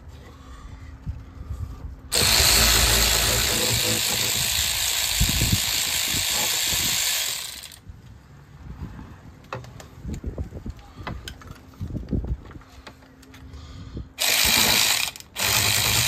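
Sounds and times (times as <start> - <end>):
loud rushing hiss: 2.1 - 7.8.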